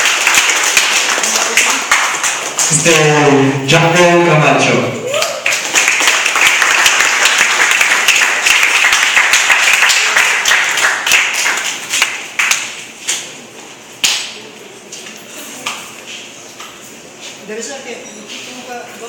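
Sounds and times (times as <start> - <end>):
audience applauding: 0.0 - 3.5, 5.1 - 12.7.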